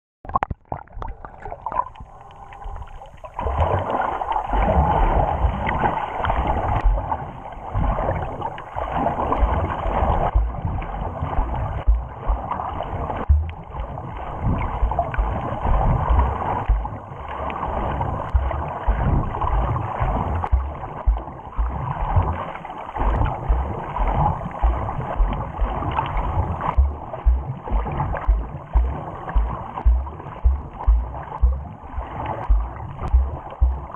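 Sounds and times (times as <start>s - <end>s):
muffled underwater water rushing: 0.2s - 33.9s
low thumps: 10.2s - 12.6s, 13.2s - 14.0s, 14.9s - 17.0s, 18.3s - 22.4s, 23.2s - 33.9s.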